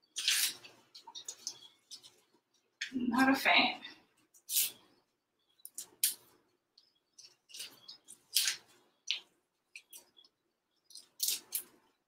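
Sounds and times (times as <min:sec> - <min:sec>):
onion skin crackling and rustling: 0:00.0 - 0:02.4, 0:07.1 - 0:10.2, 0:10.9 - 0:12.0.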